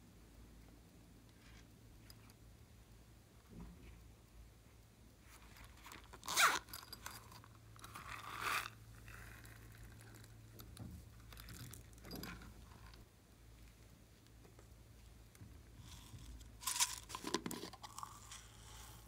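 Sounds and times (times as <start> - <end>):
zipper rasping open: 5.7 - 10.3.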